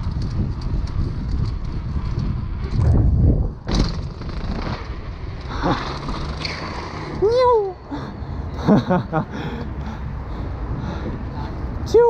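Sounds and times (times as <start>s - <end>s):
bike tyres rolling over paving: 0.0s - 7.2s
wind rumbling on camera: 0.0s - 9.1s.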